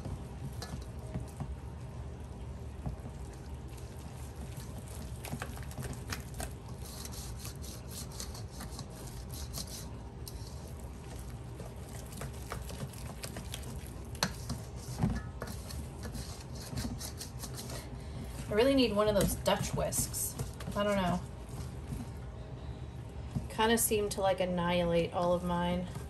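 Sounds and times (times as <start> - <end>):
whisk scraping bowl: 3.7 - 22.2.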